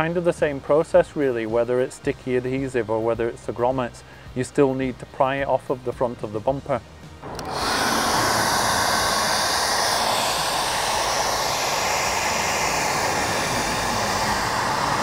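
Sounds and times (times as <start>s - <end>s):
hair dryer running: 7.2s - 15.0s.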